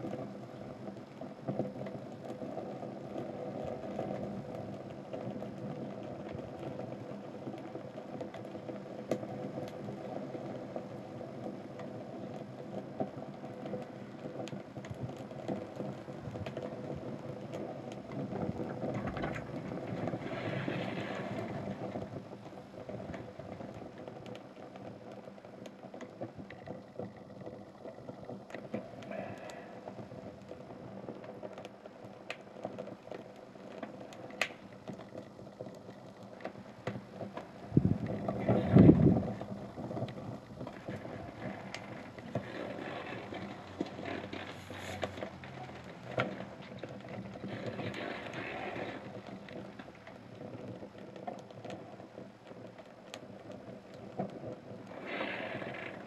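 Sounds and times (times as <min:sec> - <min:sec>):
fire crackling and popping: 0:00.0 - 0:56.0
steady rushing noise: 0:36.1 - 0:50.4.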